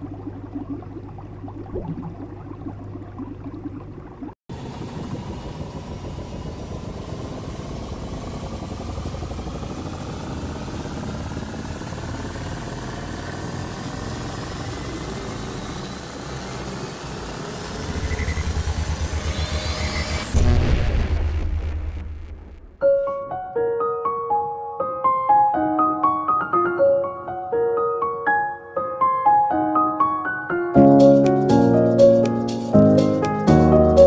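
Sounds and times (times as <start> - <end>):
engine-like rumble with rising whine: 0.0 - 22.8
fast low pulsing: 0.0 - 22.8.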